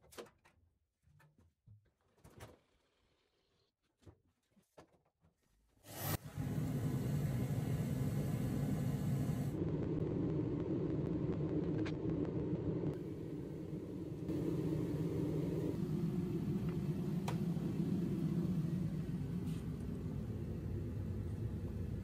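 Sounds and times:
low rumbling background noise: 0:06.6 - 0:22.0.

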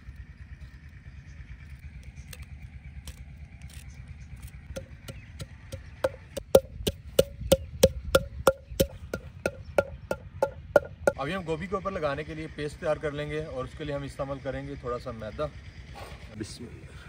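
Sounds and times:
pestle pounding in wooden mortar: 0:04.7 - 0:11.2.

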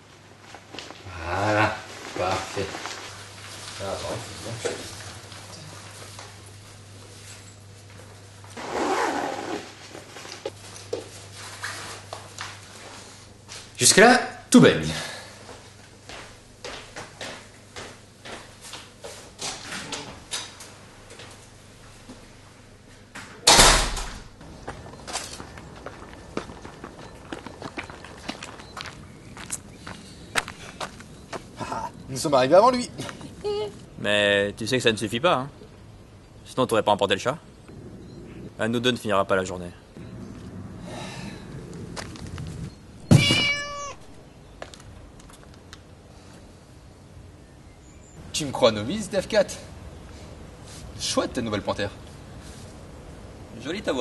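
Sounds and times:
footsteps on wooden floor: 0:15.5 - 0:19.3
door slamming: 0:23.4 - 0:24.3, 0:43.0 - 0:43.8
cat meowing: 0:43.0 - 0:44.2.

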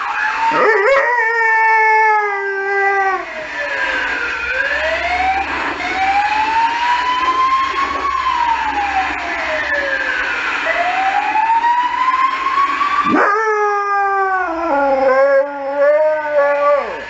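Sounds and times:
siren wailing: 0:00.0 - 0:17.0
dog howling: 0:00.5 - 0:03.3, 0:13.0 - 0:17.0.

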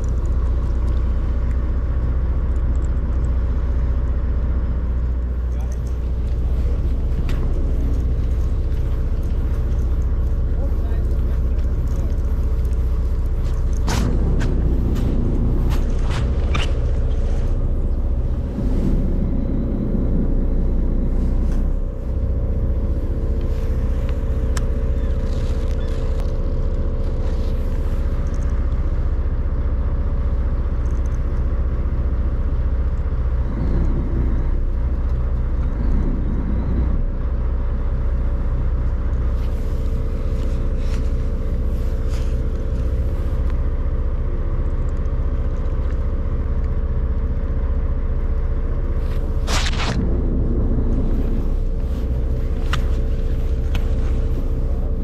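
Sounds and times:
rod and reel clicks: 0:00.0 - 0:03.7, 0:05.1 - 0:14.2, 0:23.4 - 0:29.2, 0:30.7 - 0:31.6
boat engine droning: 0:00.0 - 0:55.0.

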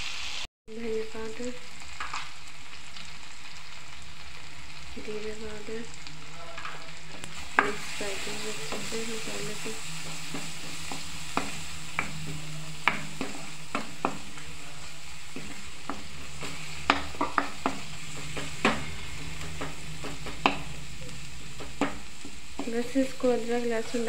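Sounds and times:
food sizzling in a frying pan: 0:00.0 - 0:24.0
wooden spatula knocking on pan: 0:10.3 - 0:14.5, 0:15.4 - 0:20.7, 0:21.6 - 0:22.8.

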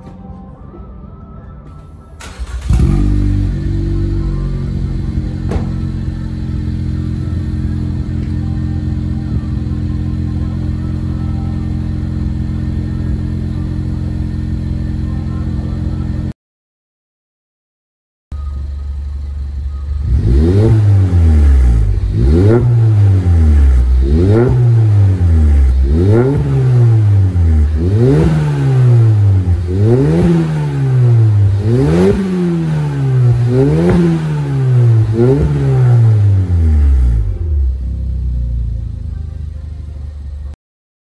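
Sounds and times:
car engine idling and revving: 0:02.2 - 0:16.3, 0:18.3 - 0:40.6.

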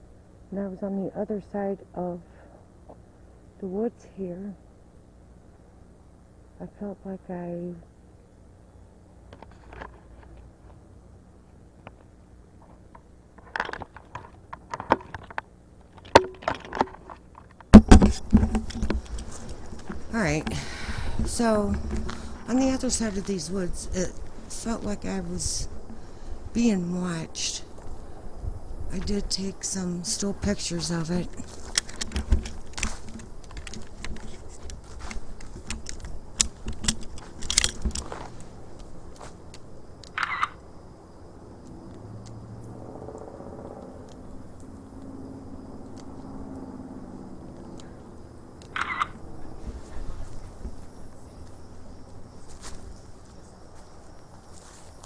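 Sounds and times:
footsteps crunching dry leaves: 0:31.3 - 0:36.6, 0:51.5 - 0:55.0.

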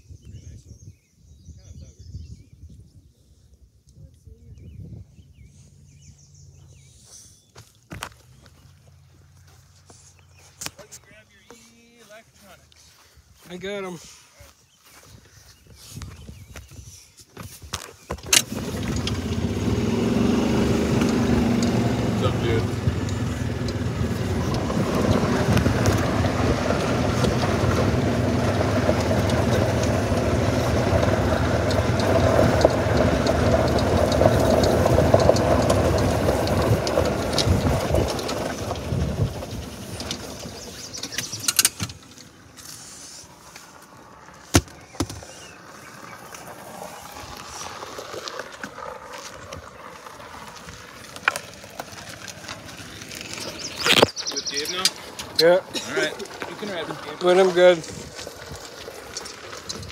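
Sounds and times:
golf cart running: 0:18.0 - 0:59.9.

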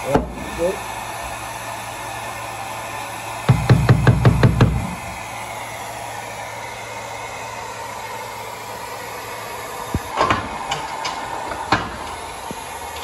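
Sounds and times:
workshop background noise: 0:00.0 - 0:13.0.

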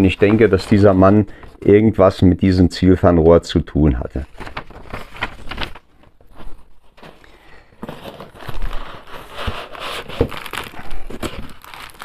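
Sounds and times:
plastic packaging crinkling: 0:04.3 - 0:12.0.

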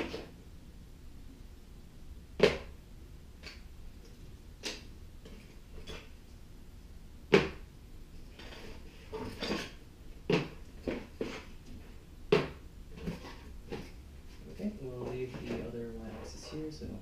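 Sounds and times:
cardboard rustling: 0:13.0 - 0:16.8.

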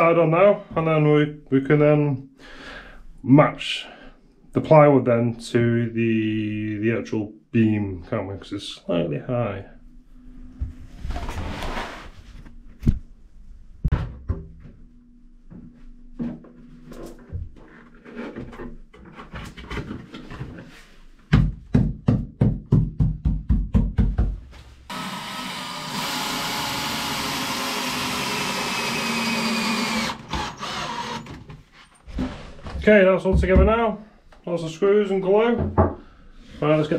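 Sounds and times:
cordless drill driving screws: 0:24.9 - 0:31.5.

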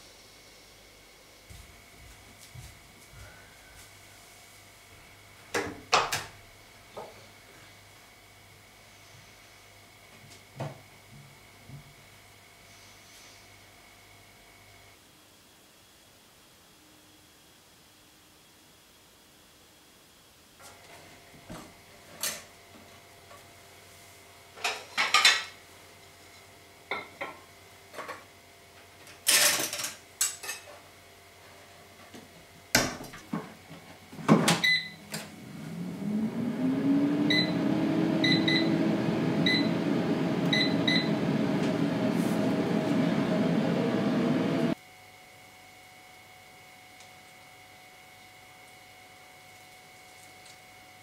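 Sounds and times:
kitchen appliance motor hum: 0:35.2 - 0:44.8.

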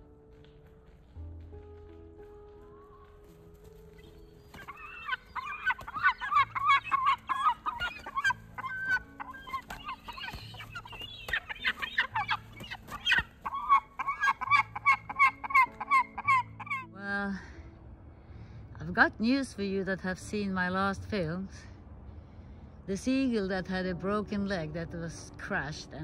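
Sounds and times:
gulls calling: 0:02.5 - 0:16.9.

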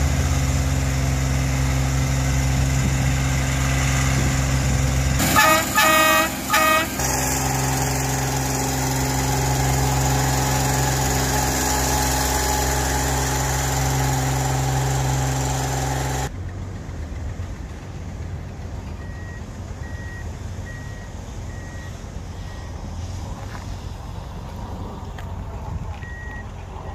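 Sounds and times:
engine running: 0:00.0 - 0:26.9
machine horn blasts: 0:05.2 - 0:07.2
faint beeps: 0:18.9 - 0:22.8, 0:26.0 - 0:26.9.

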